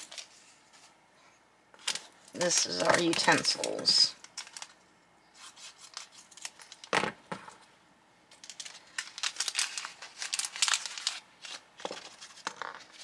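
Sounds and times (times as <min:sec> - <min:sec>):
plastic packet crinkling: 0:00.0 - 0:00.4, 0:01.8 - 0:04.8, 0:05.7 - 0:07.0, 0:08.3 - 0:13.0.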